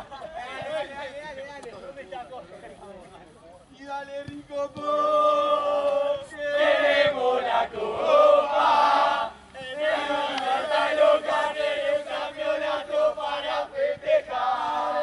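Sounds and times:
group chanting: 0:05.2 - 0:15.0.

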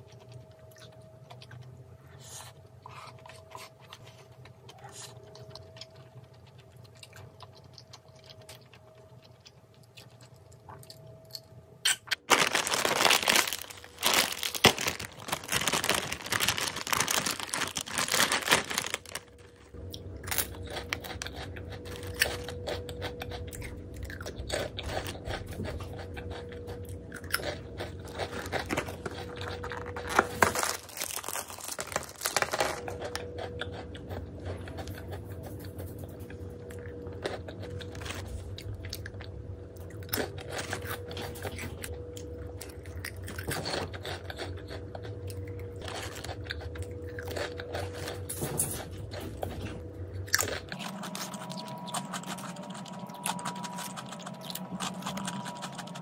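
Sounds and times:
snack bag crinkling and tearing: 0:11.9 - 0:39.3, 0:40.0 - 0:49.6, 0:50.2 - 0:56.0
foil pouch crinkling: 0:12.2 - 0:19.8, 0:28.1 - 0:33.2.

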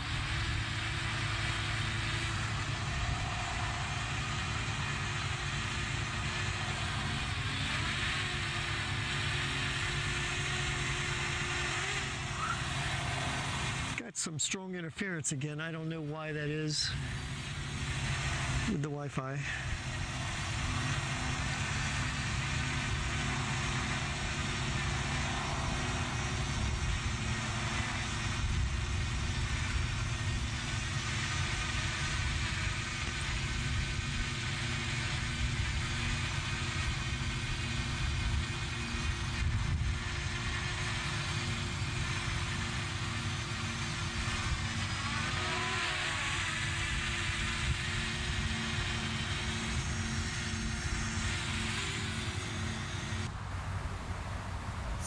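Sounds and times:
faint steady hum: 0:00.0 - 0:55.0
wind buffeting microphone: 0:19.6 - 0:42.2.

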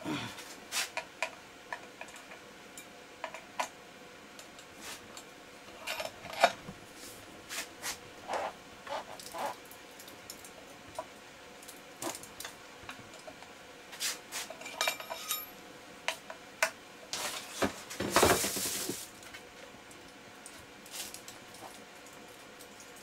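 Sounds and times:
rustling scrape: 0:05.8 - 0:09.6, 0:13.9 - 0:15.3, 0:17.1 - 0:19.1
hand tools clinking on metal: 0:14.6 - 0:15.5.

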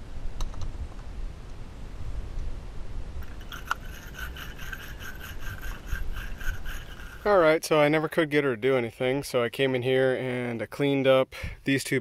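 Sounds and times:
tool scraping battery terminals: 0:03.2 - 0:07.4.

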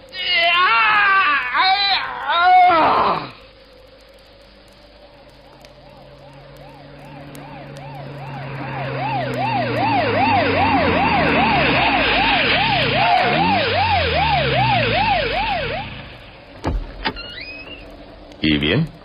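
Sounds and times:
police siren wailing: 0:05.5 - 0:16.3
vehicle engine: 0:05.6 - 0:16.7.

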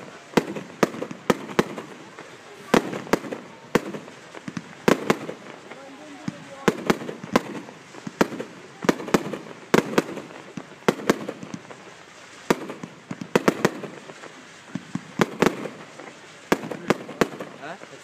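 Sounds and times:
fireworks banging: 0:00.0 - 0:18.0
fireworks hissing: 0:00.0 - 0:18.0.

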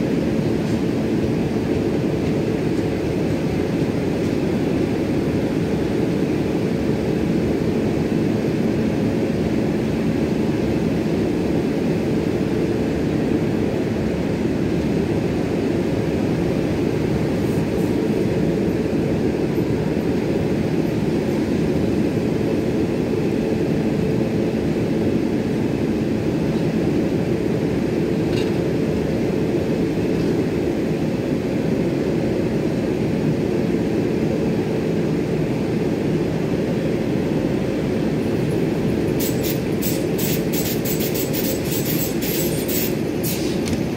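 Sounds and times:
train wheels rumbling on rails: 0:00.0 - 0:33.3, 0:35.0 - 0:43.9.

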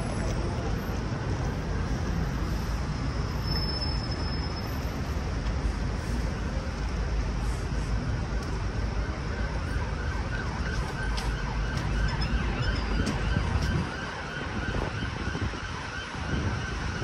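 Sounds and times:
city traffic rumble: 0:00.0 - 0:17.0
emergency vehicle siren: 0:08.1 - 0:17.0.

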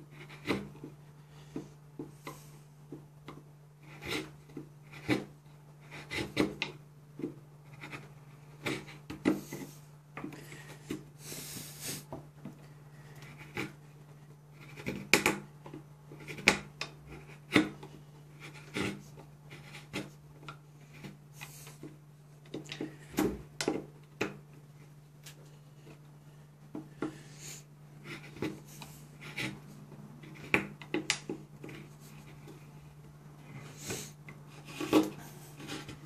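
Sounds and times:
knife shaving wood: 0:00.0 - 0:26.0, 0:27.0 - 0:36.0.

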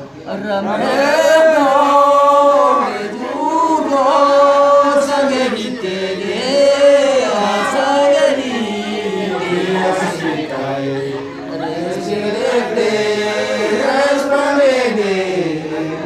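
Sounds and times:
man singing unaccompanied: 0:00.1 - 0:16.0.

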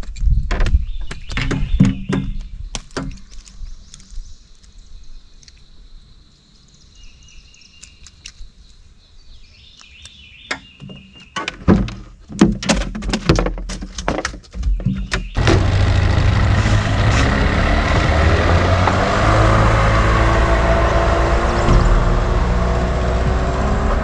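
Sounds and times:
knocks and clatter on boat: 0:00.4 - 0:03.2, 0:10.8 - 0:19.1, 0:21.4 - 0:24.0
boat motor running: 0:15.4 - 0:24.0.

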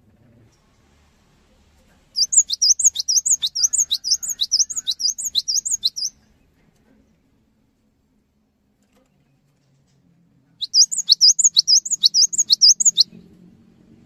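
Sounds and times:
bird singing sharp two-note phrases: 0:02.2 - 0:06.1.

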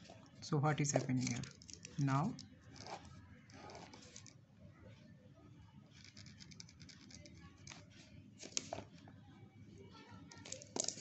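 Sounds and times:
pen scratching on paper: 0:02.7 - 0:04.3.

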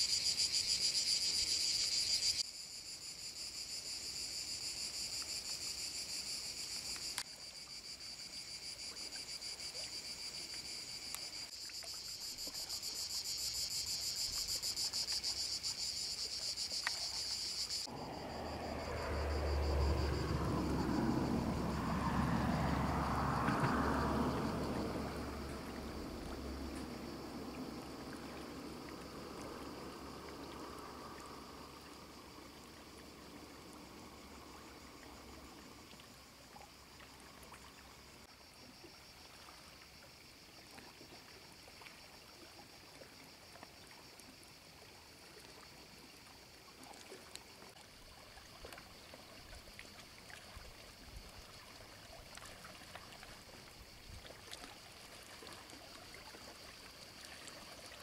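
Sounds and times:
seawater lapping and trickling: 0:04.9 - 0:58.0.

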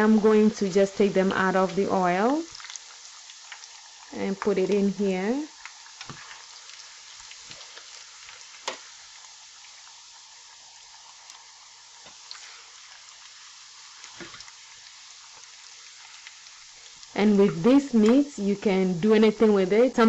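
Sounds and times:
meat sizzling in oil: 0:00.0 - 0:20.0.

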